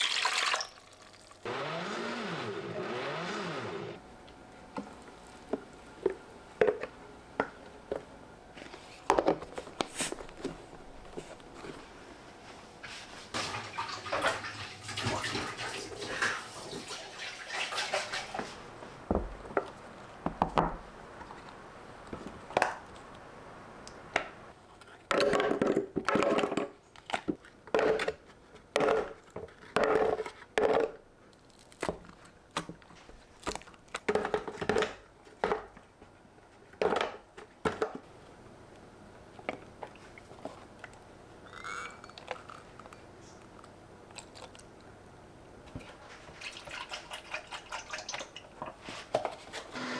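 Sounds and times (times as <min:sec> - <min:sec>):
water running: 0:00.0 - 0:01.5, 0:13.4 - 0:18.6, 0:46.1 - 0:48.6.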